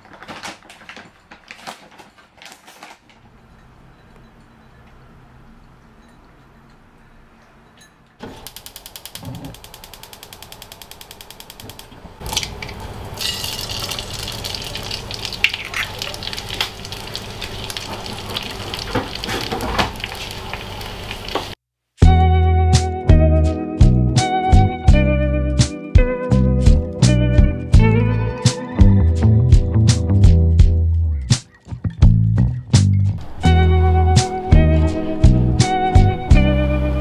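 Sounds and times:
gas hob igniter ticking: 8.4s - 12.6s
egg sizzling in frying pan: 12.2s - 21.6s
music: 22.0s - 37.0s.

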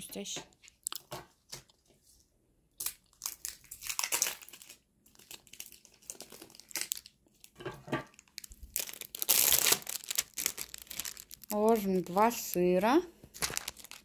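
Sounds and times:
plastic wrapping crinkling: 2.8s - 14.0s.

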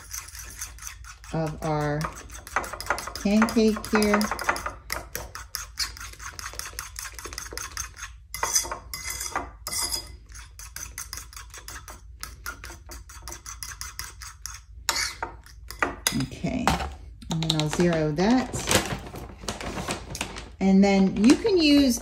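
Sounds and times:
fork clinking and scraping bowl: 0.0s - 16.2s.

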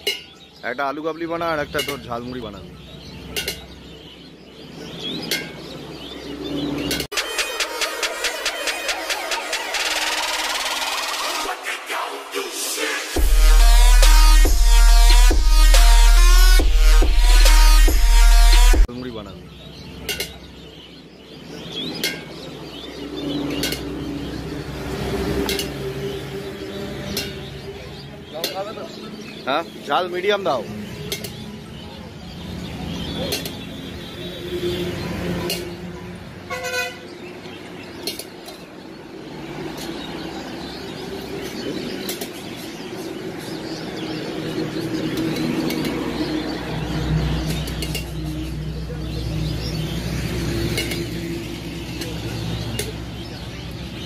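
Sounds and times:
traffic rumble: 0.0s - 7.2s, 13.1s - 54.0s
birds chirping: 0.0s - 54.0s.

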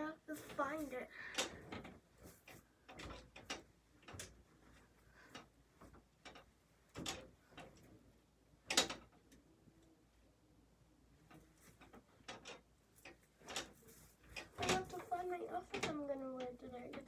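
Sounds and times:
clicks and knocks of rummaging: 0.0s - 9.4s, 11.2s - 17.0s.

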